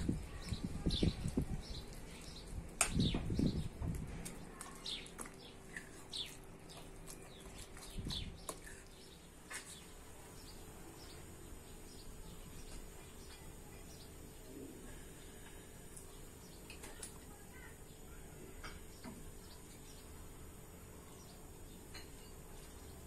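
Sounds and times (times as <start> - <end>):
small birds chirping: 0.0 - 23.0
spoon squelching in wet mixture: 4.2 - 9.8.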